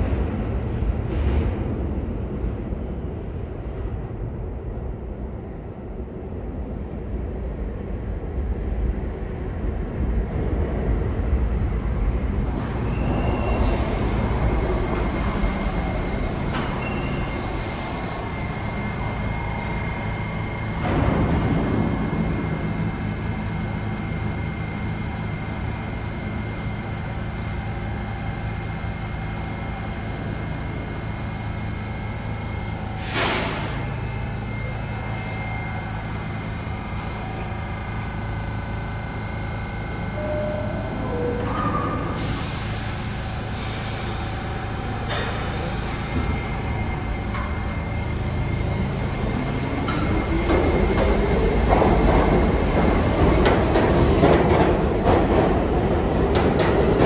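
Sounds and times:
subway train rumbling: 0.0 - 57.0
high-pitched wheel squeal: 12.7 - 20.6, 45.3 - 48.0
short hisses of air: 32.6 - 33.9.

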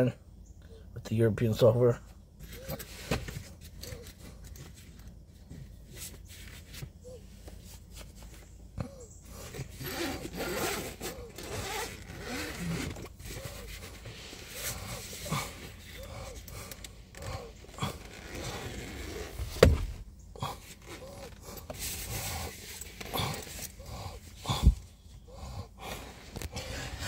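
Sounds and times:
clothing rustling against microphone: 9.4 - 24.4.

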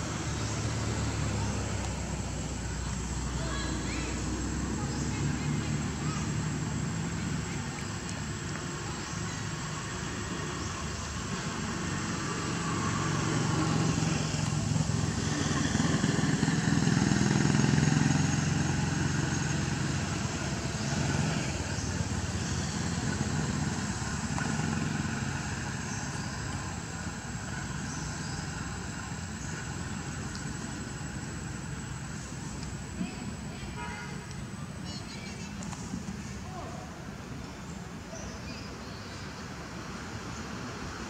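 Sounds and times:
vehicle engine passing by: 0.0 - 8.4, 9.0 - 33.3.

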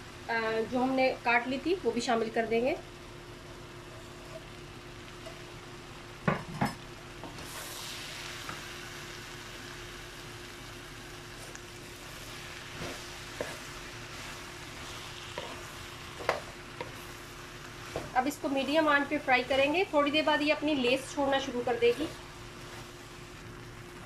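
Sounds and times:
faint steady hum: 0.0 - 24.0
vegetables sizzling in hot oil: 0.0 - 24.0
wooden spatula stirring: 12.7 - 17.2.

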